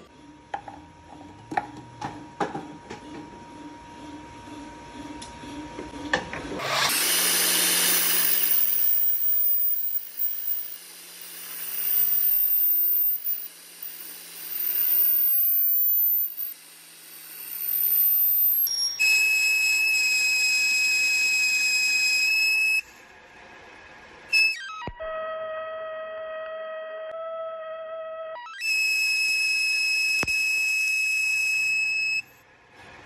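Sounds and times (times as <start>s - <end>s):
lathe cutting hiss: 6.6s - 19.4s
high electronic tone: 7.7s - 20.2s.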